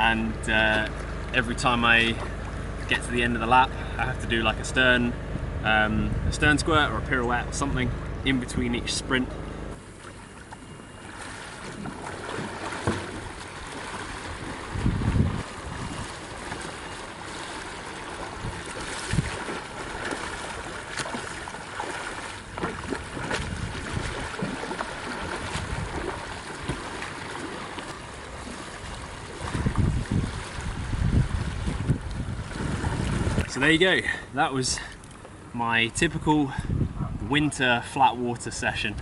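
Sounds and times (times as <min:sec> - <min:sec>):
moving water: 0:00.0 - 0:39.0
wind: 0:00.0 - 0:39.0
wind buffeting microphone: 0:03.6 - 0:08.6, 0:12.7 - 0:17.0, 0:18.0 - 0:20.5, 0:22.5 - 0:26.9, 0:28.8 - 0:34.2, 0:36.0 - 0:37.5
kayak paddle splashes: 0:09.8 - 0:33.7.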